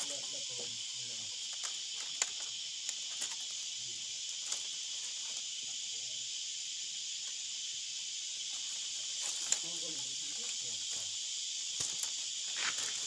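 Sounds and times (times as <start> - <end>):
high-pitched insect drone: 0.0 - 13.0
bamboo strips clicking and rustling: 1.2 - 5.4, 8.6 - 11.1, 11.7 - 13.0.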